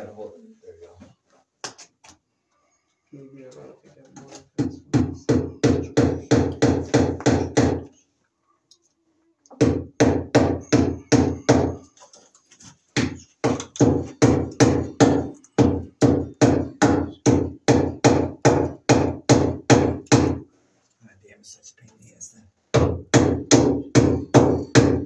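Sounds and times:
hammer striking: 0:04.6 - 0:07.8, 0:09.6 - 0:11.8, 0:13.0 - 0:20.4, 0:22.8 - 0:25.0.

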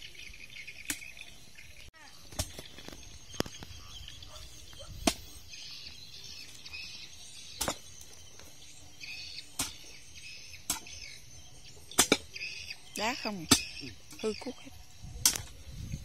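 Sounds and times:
hoe striking stony dirt: 0:02.3 - 0:03.5, 0:07.5 - 0:08.0, 0:09.4 - 0:09.9, 0:10.6 - 0:11.1, 0:11.9 - 0:12.5, 0:13.3 - 0:14.3, 0:15.2 - 0:15.6.

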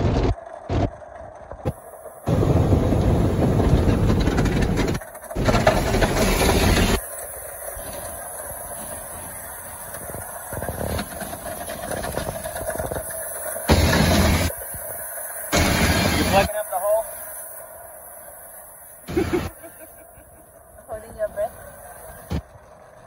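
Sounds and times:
car wash machinery rumble: 0:01.7 - 0:23.0
water spray rushing: 0:05.4 - 0:20.2.

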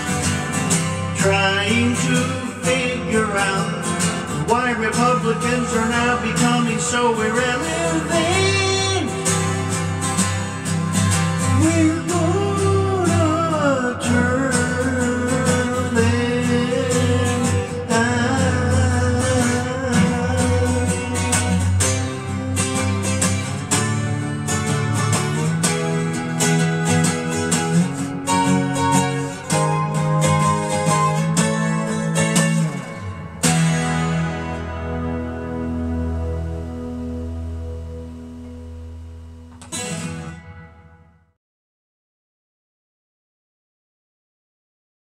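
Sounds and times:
twelve-string acoustic guitar: 0:00.0 - 0:41.4
man singing: 0:01.0 - 0:10.0, 0:11.4 - 0:22.3.

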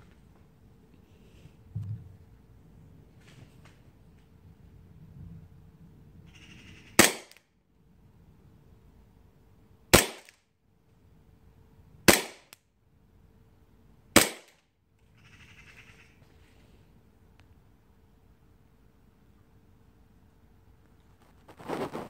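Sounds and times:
airsoft pistol shots: 0:07.0 - 0:07.4, 0:09.9 - 0:10.4, 0:12.1 - 0:12.6, 0:14.2 - 0:14.6.

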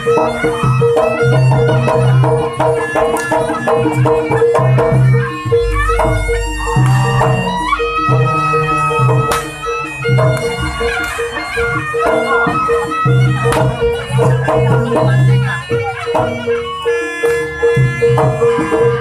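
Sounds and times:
reedy wind instrument melody: 0:00.0 - 0:19.0
repeated struck note: 0:00.0 - 0:19.0
low booming notes: 0:04.1 - 0:11.7.

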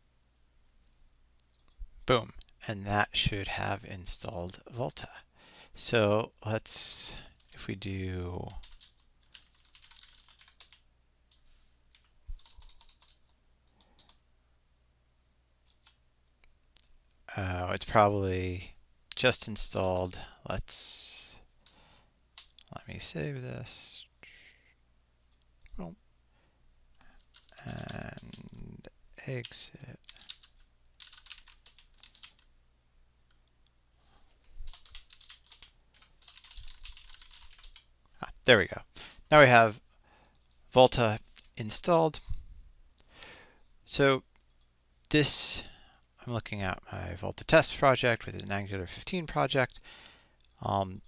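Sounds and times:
typing on computer keyboard: 0:08.5 - 0:14.2, 0:15.6 - 0:16.0, 0:27.2 - 0:28.4, 0:29.4 - 0:32.5, 0:34.7 - 0:37.9, 0:40.2 - 0:40.6.

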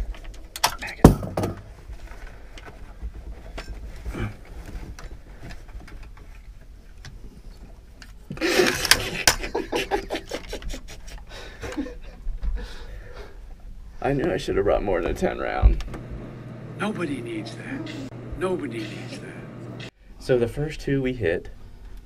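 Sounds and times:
rifles being handled: 0:00.0 - 0:09.4.

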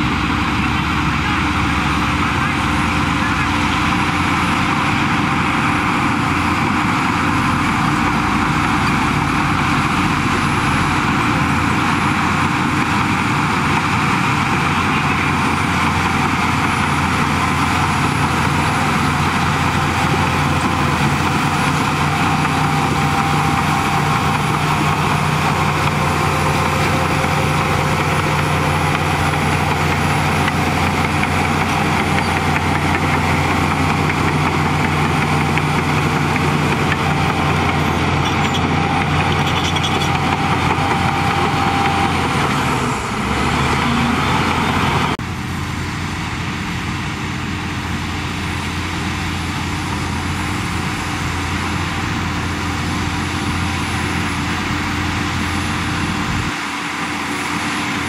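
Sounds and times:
bulldozer diesel engine running: 0:00.0 - 0:58.0.

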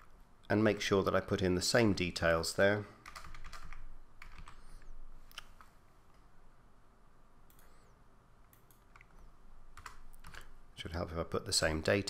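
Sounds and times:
keyboard keystrokes: 0:03.0 - 0:04.6.

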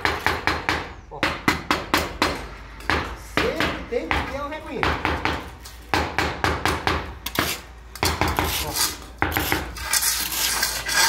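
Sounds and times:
scraping: 0:07.3 - 0:11.0.

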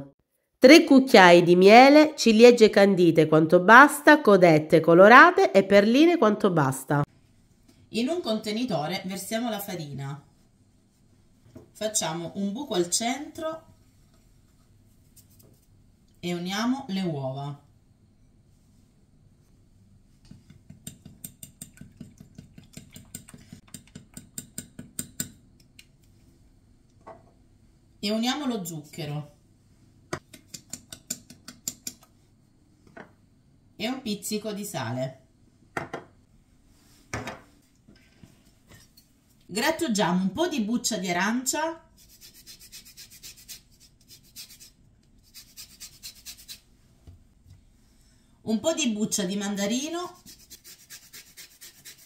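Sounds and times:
fork beating eggs in glass dish: 0:20.3 - 0:25.7, 0:30.2 - 0:32.0
peel scraping on grater: 0:50.1 - 0:52.0.

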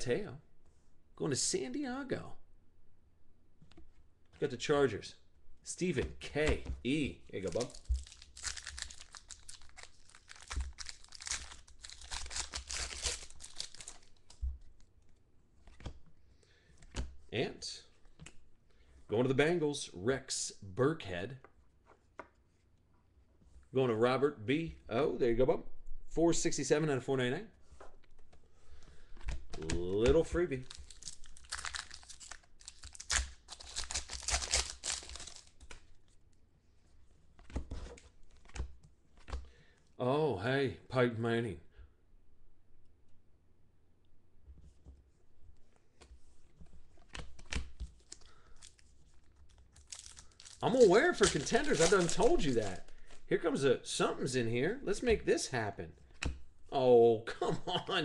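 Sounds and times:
foil wrapper tearing and crinkling: 0:07.4 - 0:14.4, 0:30.6 - 0:35.7, 0:47.4 - 0:53.2.

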